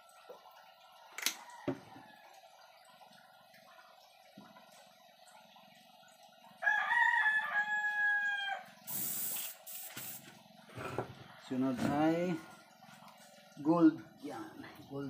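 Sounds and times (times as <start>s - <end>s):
rooster crowing: 6.6s - 8.8s
airbrush air hisses: 8.9s - 10.2s.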